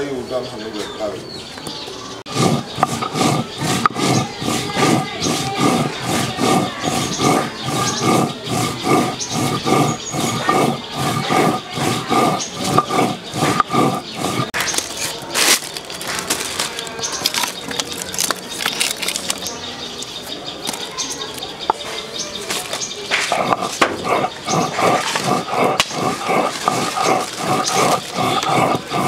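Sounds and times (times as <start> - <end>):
stone roller grinding on stone: 2.2 - 19.5, 22.3 - 29.0
firewood sticks cracking and clattering: 14.6 - 19.5.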